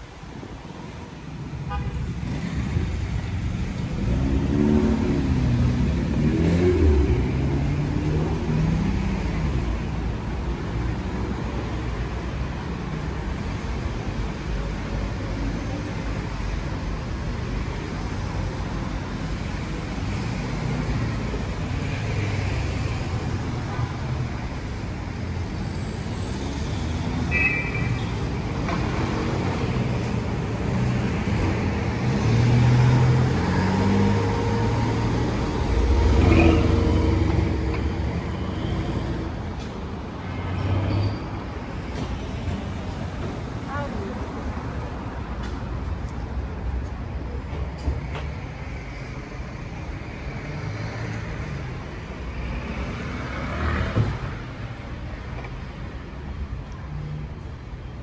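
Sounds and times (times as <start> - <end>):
road noise: 0.0 - 58.0
car engines pulling away: 2.2 - 9.4, 28.4 - 39.8.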